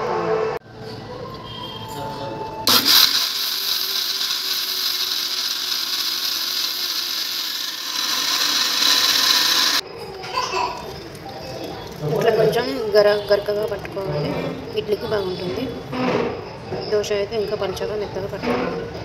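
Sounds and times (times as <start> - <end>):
electric kitchen grinder running: 2.7 - 9.8.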